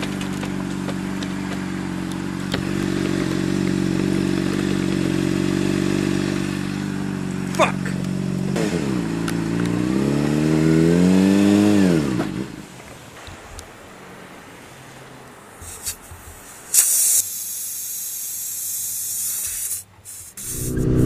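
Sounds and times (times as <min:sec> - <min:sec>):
motorcycle engine revving: 0:00.0 - 0:12.7, 0:20.4 - 0:21.0
road and wind noise: 0:00.0 - 0:18.6, 0:19.5 - 0:21.0
rush of hiss: 0:15.6 - 0:21.0.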